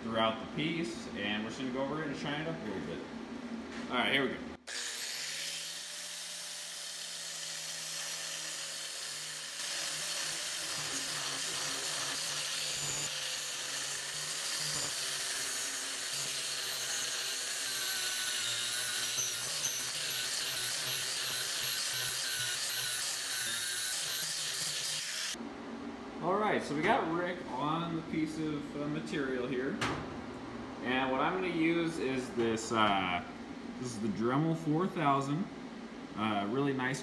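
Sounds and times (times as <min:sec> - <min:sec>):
angle grinder sanding metal: 0:04.7 - 0:25.4.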